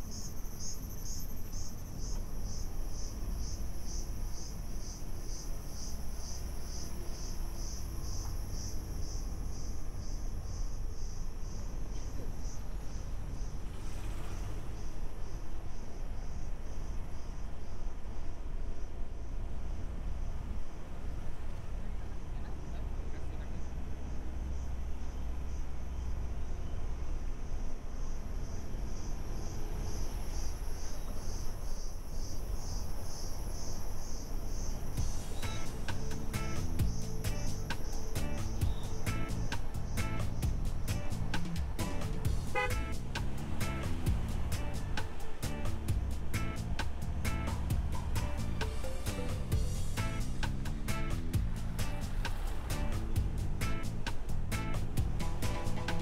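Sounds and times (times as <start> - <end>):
insects calling shrilly: 0.0 - 18.9, 22.0 - 56.0
low steady rumble: 35.0 - 56.0.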